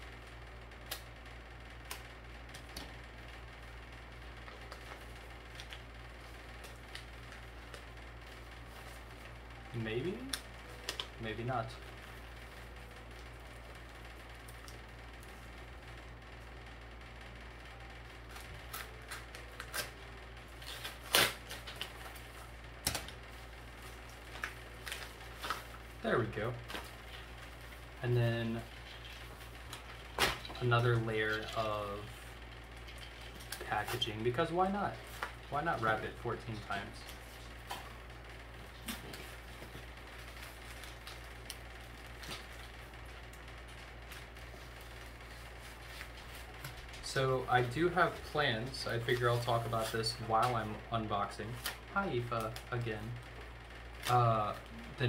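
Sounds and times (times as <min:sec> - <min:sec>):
steady low hum: 0:00.0 - 0:55.0
paper envelope crackling and ripping: 0:18.2 - 0:53.1
paper rustling and scraping: 0:43.7 - 0:47.0, 0:47.6 - 0:50.8.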